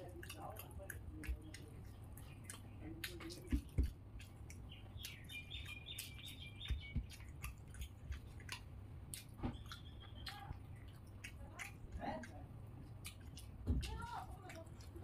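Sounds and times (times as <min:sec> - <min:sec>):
chewing and wet mouth clicks: 0:00.0 - 0:15.0
bird chirping: 0:01.2 - 0:11.8.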